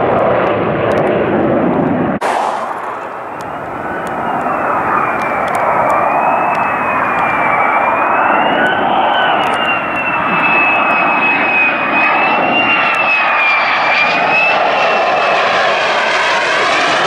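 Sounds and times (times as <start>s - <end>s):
jet flyby with high whine: 0.0s - 17.0s
rough jet rumble: 0.0s - 17.0s.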